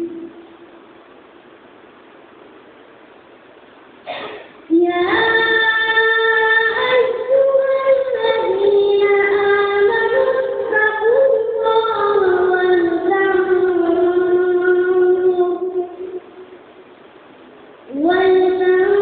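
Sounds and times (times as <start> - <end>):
high young voice chanting: 0.0 - 0.6, 4.1 - 16.4, 17.9 - 19.0.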